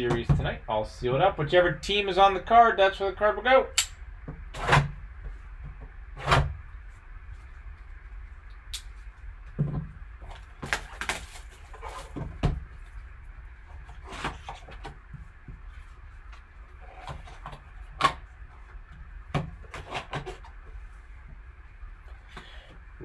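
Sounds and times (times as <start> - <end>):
cardboard and wrapper rustling: 10.2 - 12.9.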